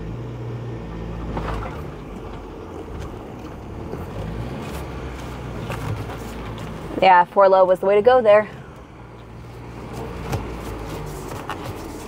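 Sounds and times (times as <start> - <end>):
engine droning inside cabin: 0.0 - 12.0
body and suspension clicks: 1.4 - 7.0.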